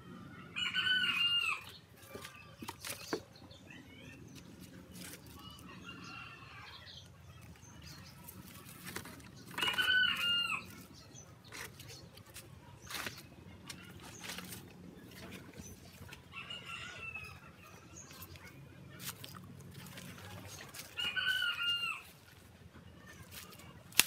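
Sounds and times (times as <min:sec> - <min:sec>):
rooster crowing: 0:00.5 - 0:01.7, 0:09.6 - 0:10.7, 0:16.3 - 0:17.4, 0:21.0 - 0:22.1.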